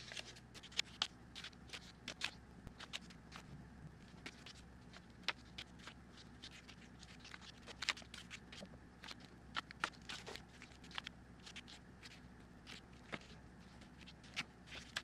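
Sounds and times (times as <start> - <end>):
banknotes rustling: 0.0 - 15.0.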